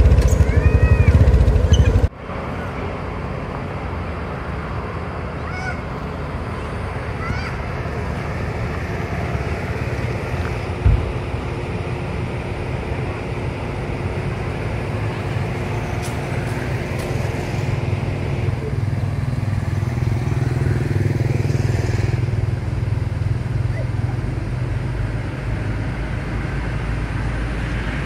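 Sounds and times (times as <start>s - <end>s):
engine rumbling: 0.0s - 28.0s
low thump: 10.8s - 11.2s.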